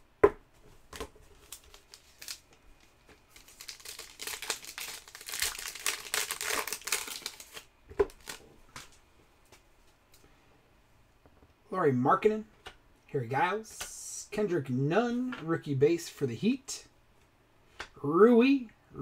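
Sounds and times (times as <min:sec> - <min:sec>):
foil wrapper tearing and crinkling: 0:01.4 - 0:08.4.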